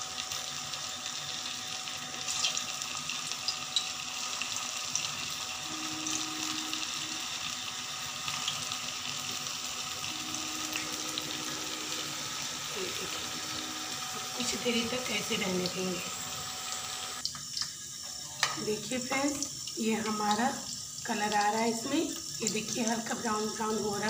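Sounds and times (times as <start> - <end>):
food sizzling in hot oil: 0.0 - 24.0.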